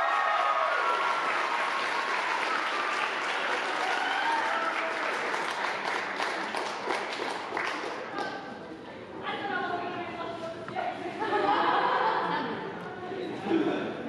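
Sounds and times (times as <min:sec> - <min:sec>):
crowd applauding: 0:00.0 - 0:08.4.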